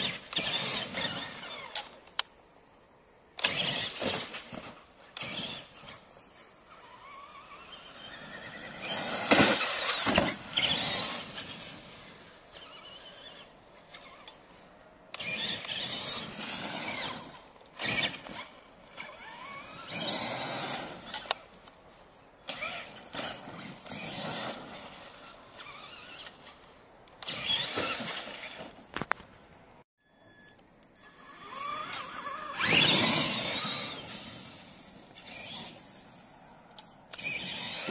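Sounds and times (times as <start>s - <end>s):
electric motor whining: 6.6s - 14.3s, 31.1s - 35.9s.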